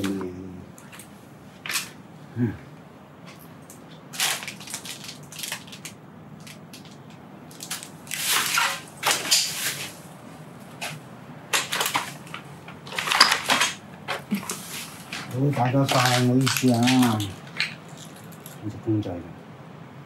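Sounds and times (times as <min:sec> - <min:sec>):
debris crunching and rustling: 0:04.1 - 0:10.0, 0:10.8 - 0:18.6.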